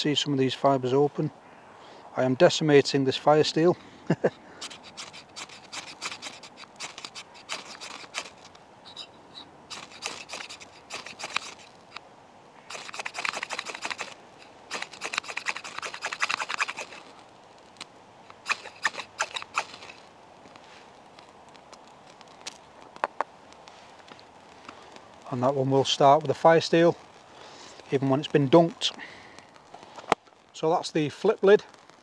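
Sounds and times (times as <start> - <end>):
knife scraping fire steel: 4.6 - 12.0, 12.7 - 17.2, 18.4 - 20.8.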